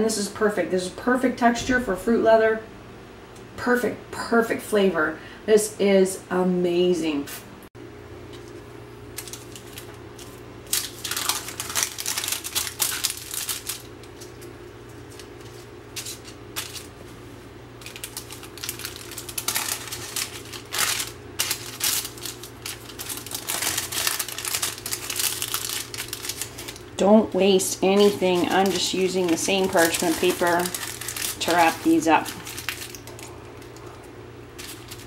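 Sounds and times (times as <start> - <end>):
parchment paper crinkling: 9.2 - 17.2, 17.8 - 35.0.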